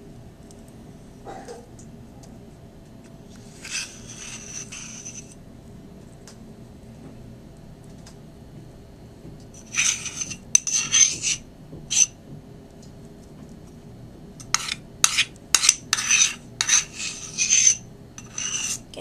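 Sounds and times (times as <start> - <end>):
metal spoon scraping a steel bowl: 3.6 - 5.4, 9.6 - 12.1, 14.4 - 18.9.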